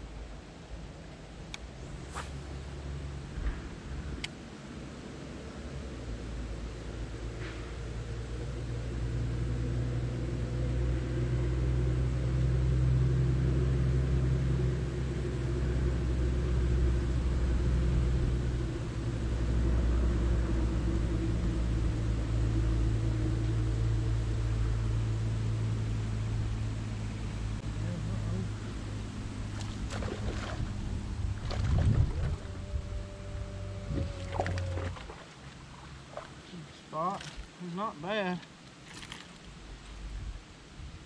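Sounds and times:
motorboat engine droning: 1.7 - 40.7.

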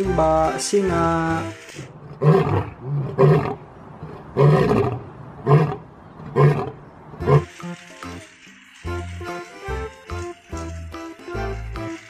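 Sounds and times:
music: 0.0 - 1.9, 7.2 - 12.0
lion roaring: 2.0 - 7.5.

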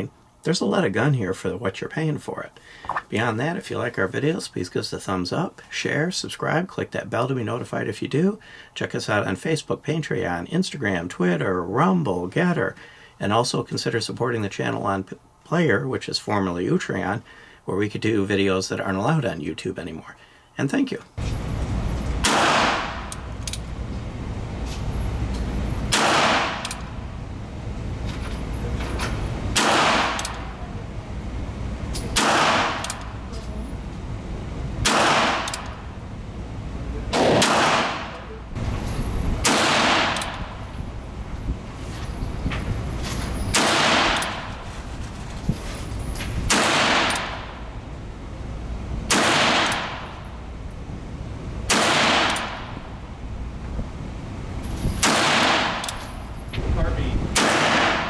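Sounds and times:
low ventilation hum: 0.0 - 58.0
revolver shots echoing: 22.2 - 23.1, 25.9 - 26.9, 29.5 - 30.6, 32.0 - 33.2, 37.1 - 38.2.

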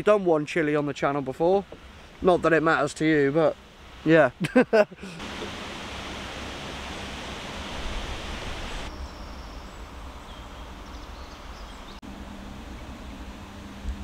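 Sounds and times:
steady hiss: 0.4 - 14.0
wind on microphone: 5.3 - 9.1.

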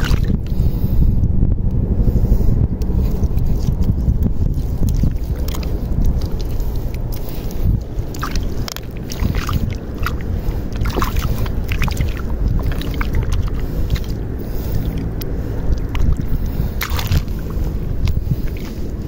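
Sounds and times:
little splashes: 0.0 - 0.4, 4.5 - 19.0
wind rumble on microphone: 0.0 - 19.0
hand sloshing in shallow water: 4.6 - 19.0.

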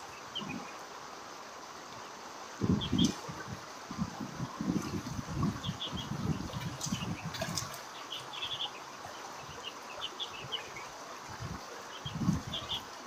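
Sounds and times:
small birds chirping: 2.7 - 3.2, 5.4 - 11.0, 11.8 - 12.9.

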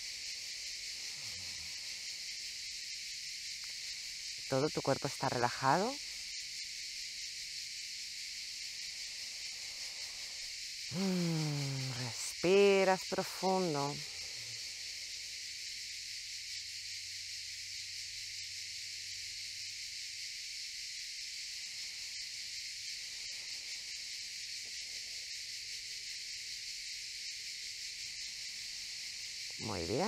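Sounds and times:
cicadas buzzing: 0.0 - 30.0.

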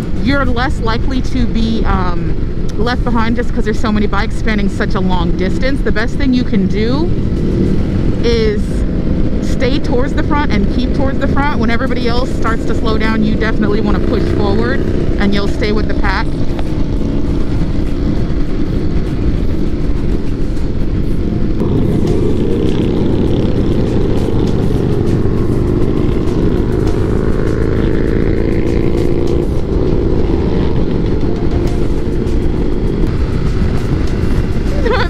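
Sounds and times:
motorcycle engines at speed: 0.0 - 35.0
wind rush: 0.0 - 35.0.

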